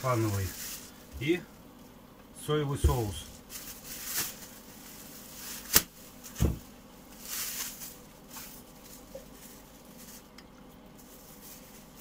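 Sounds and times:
plastic bag crinkling: 0.0 - 1.4, 3.3 - 10.4, 11.0 - 12.0
dull thump: 6.4 - 6.7.

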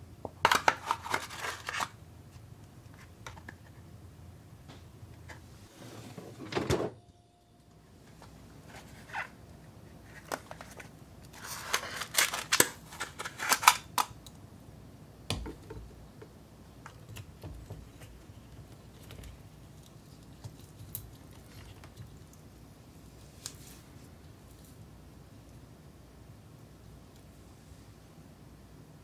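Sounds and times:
ice and plastic crackling: 0.5 - 2.0, 10.1 - 14.2.

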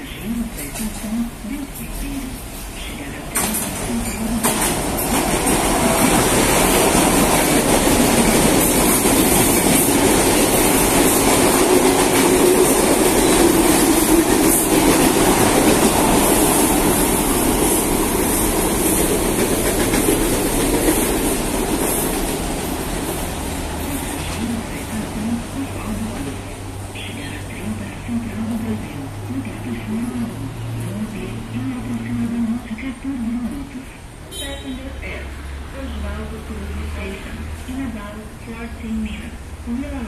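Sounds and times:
train wheels running on rails: 0.0 - 34.0.

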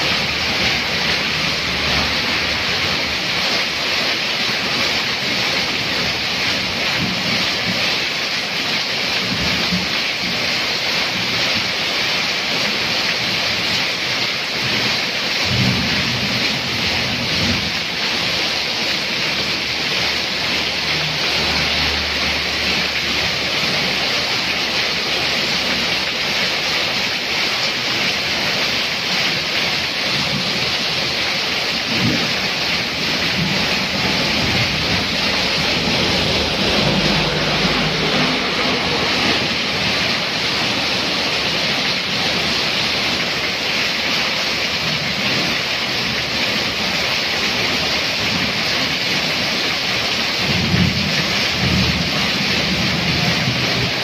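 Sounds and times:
heavy rain pouring: 0.0 - 54.0
water running off roof: 0.0 - 54.0.

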